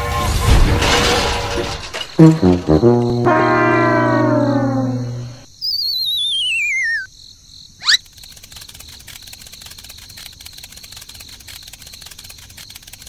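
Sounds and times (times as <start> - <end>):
crickets chirping: 2.8 - 13.0
cartoon whistle sliding down: 3.2 - 7.1
quick rising whistle: 5.6 - 7.1.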